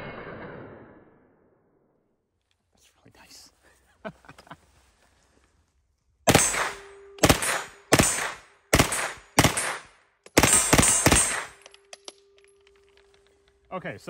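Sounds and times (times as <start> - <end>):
submachine gun full-auto bursts: 6.3 - 9.8.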